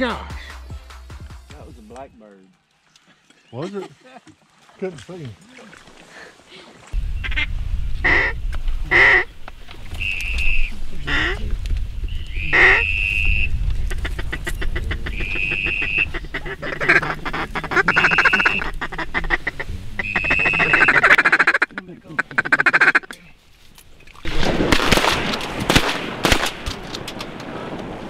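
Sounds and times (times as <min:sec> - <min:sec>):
duck call quacks: 0:07.2 - 0:09.3, 0:10.0 - 0:11.4, 0:12.3 - 0:23.1.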